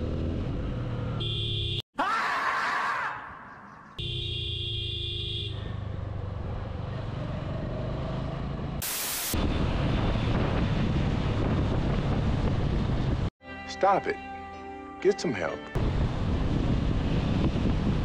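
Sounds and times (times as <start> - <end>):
road and wind noise: 0.0 - 1.8, 3.5 - 13.3, 15.8 - 18.0.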